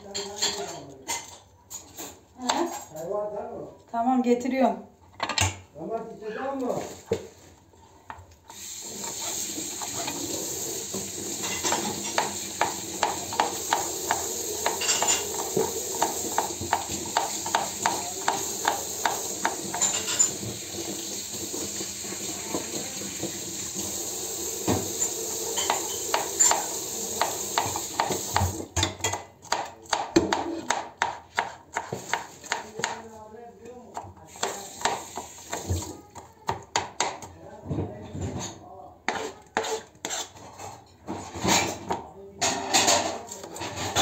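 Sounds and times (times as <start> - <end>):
knife chopping on cutting board: 11.6 - 19.9, 25.6 - 33.0, 33.9 - 35.8, 36.5 - 37.3, 39.1 - 40.3.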